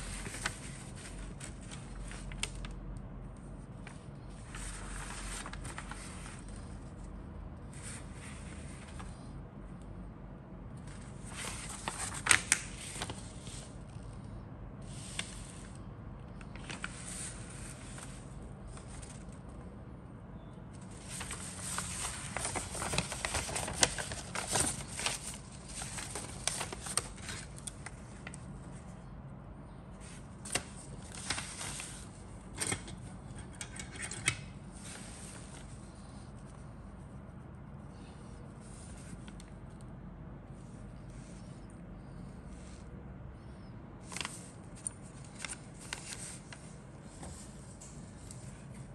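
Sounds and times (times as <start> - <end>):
paper rustling and crinkling: 0.0 - 2.8, 3.8 - 7.1, 10.8 - 14.2, 14.8 - 19.5, 20.8 - 28.9, 30.0 - 36.6, 43.6 - 48.8
low steady hum: 0.0 - 48.9.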